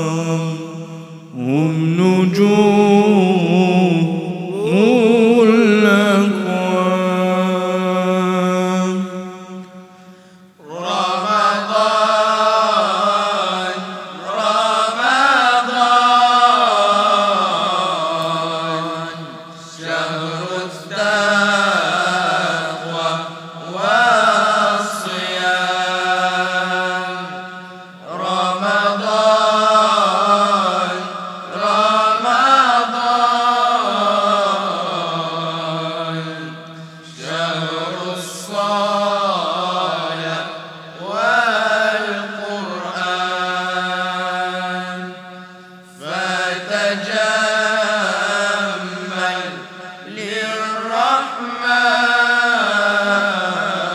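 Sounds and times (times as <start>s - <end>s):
voices chanting: 10.6s - 45.1s, 45.9s - 53.9s.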